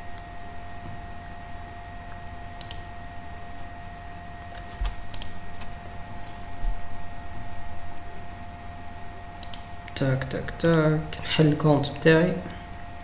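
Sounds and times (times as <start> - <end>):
background hum with high whine: 0.0 - 13.0
computer mouse clicks: 2.6 - 2.9, 4.5 - 5.8, 9.4 - 9.7.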